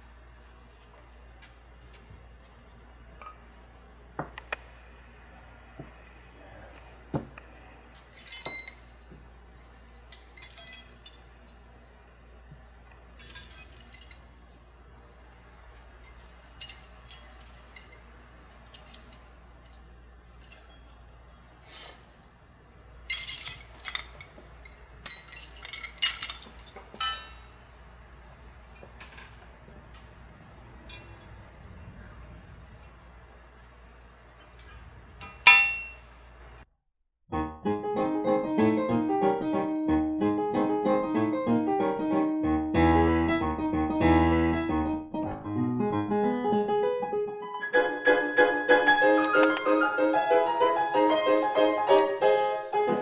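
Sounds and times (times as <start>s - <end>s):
small steel parts clinking: 7.9s - 8.9s, 9.5s - 11.7s, 13.1s - 14.4s, 15.8s - 21.4s, 23.0s - 27.6s, 30.8s - 31.5s, 34.6s - 36.0s, 49.0s - 53.0s.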